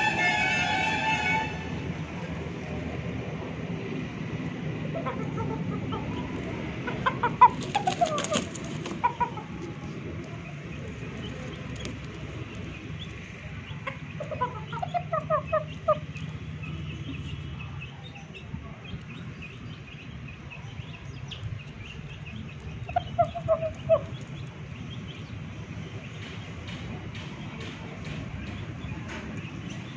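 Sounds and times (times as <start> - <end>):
rooster clucking: 4.8 - 10.0, 13.7 - 16.3.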